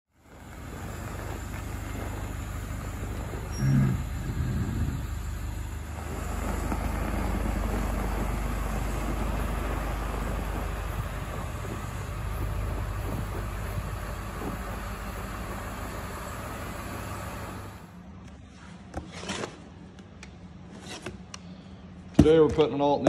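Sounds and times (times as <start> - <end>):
diesel bus engine running: 0.1 - 18.0.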